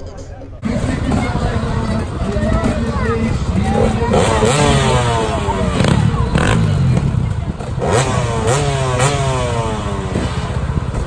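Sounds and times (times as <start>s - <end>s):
dirt bike engines idling: 0.0s - 11.0s
engine throttle blips: 0.6s - 11.0s.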